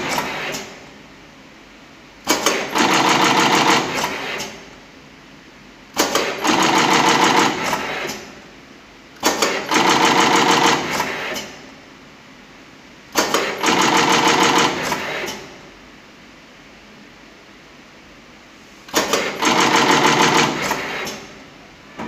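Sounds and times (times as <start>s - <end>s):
machine clicks: 2.2s - 4.7s, 5.9s - 8.4s, 9.2s - 11.6s, 13.1s - 15.6s, 18.9s - 21.4s.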